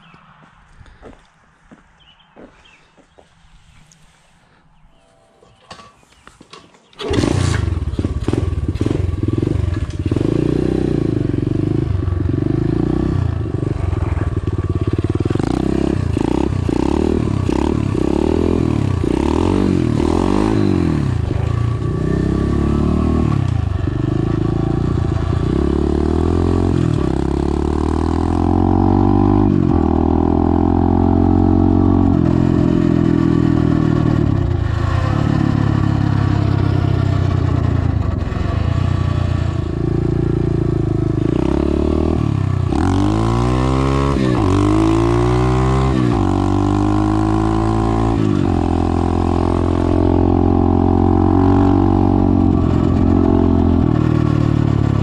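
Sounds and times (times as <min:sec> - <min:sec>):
motorbike engine revving: 0:07.0 - 0:55.0.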